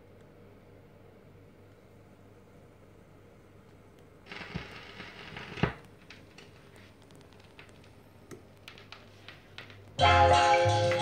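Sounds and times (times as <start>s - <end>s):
vinyl record crackle: 3.9s - 11.0s.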